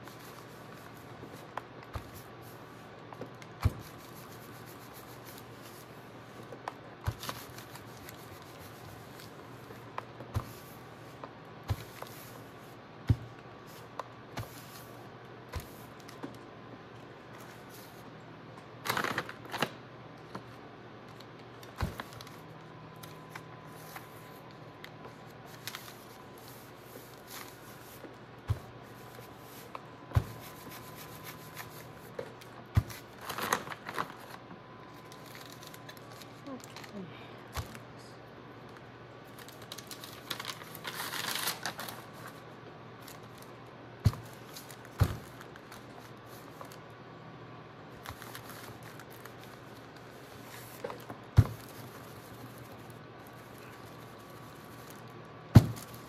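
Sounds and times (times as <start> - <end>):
paper crackling under iron: 18.8 - 19.8, 25.2 - 37.0, 39.3 - 42.4.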